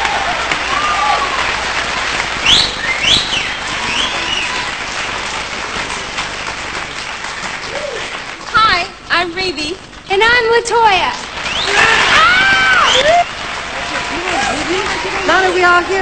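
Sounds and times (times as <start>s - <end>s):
audience applauding: 0.0s - 9.0s, 11.2s - 16.0s
whistles: 2.4s - 4.6s, 11.4s - 11.9s, 12.6s - 13.2s.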